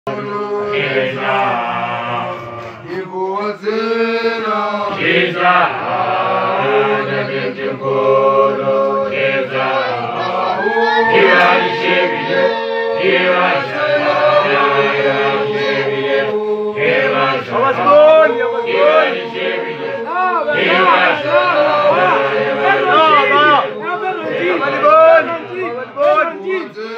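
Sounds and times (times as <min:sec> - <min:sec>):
men singing chant in harmony: 0:00.1 - 0:26.9.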